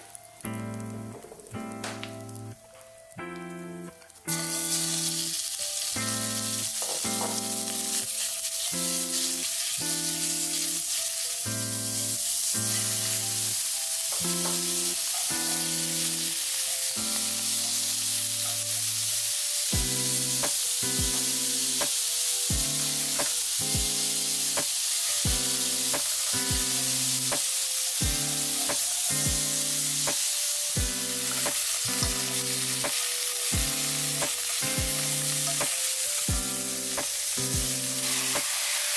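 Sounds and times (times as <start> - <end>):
food sizzling in hot oil: 0.0 - 38.9
light music: 0.0 - 38.9
chopsticks scraping a wok: 4.5 - 9.8.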